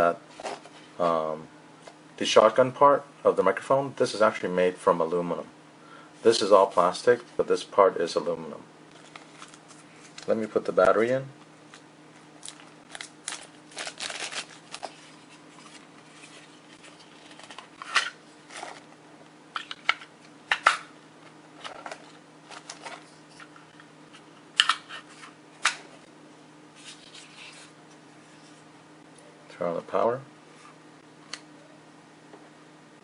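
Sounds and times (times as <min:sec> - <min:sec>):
plastic wrapper crinkling: 0:08.9 - 0:10.5, 0:12.4 - 0:18.9.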